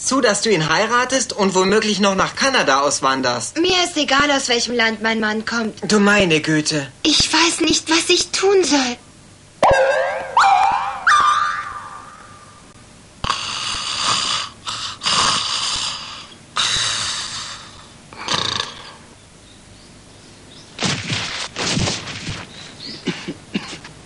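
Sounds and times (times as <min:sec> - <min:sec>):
cartoon snoring: 0:13.2 - 0:19.1.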